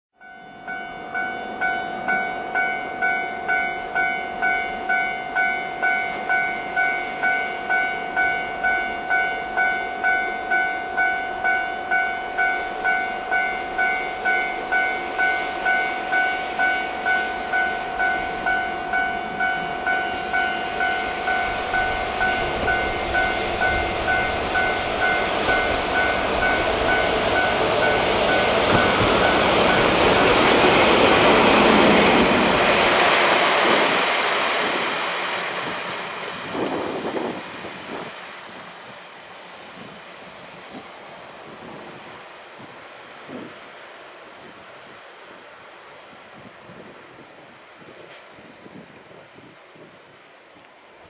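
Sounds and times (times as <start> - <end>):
level-crossing alarm dinging: 0.2 - 32.1
diesel locomotive engine and wheels: 0.2 - 51.0.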